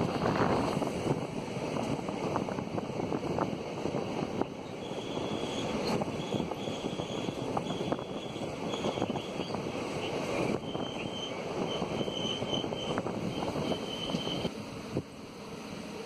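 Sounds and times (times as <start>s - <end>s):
train wheels on track: 0.0s - 16.0s
thin high squeal: 10.6s - 14.5s.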